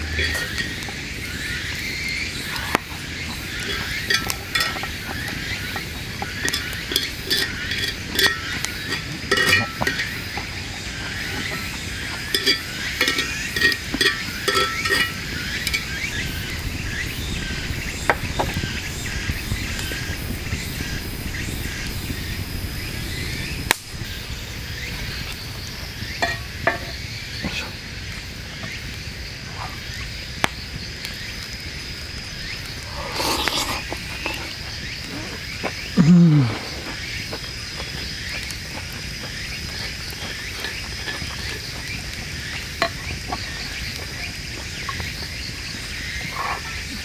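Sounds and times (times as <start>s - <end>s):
metal utensil scraping skillet: 0.0s - 1.0s, 3.6s - 16.0s
high insect drone: 0.0s - 47.0s
metal clinks: 5.8s - 10.2s, 12.3s - 15.9s.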